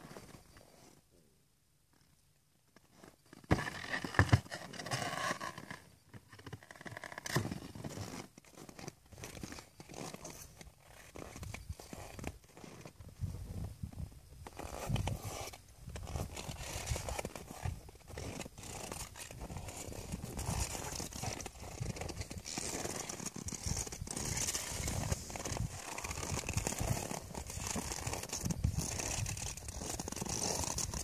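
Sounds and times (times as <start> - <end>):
hooves and boots crunching snow: 7.6 - 31.0.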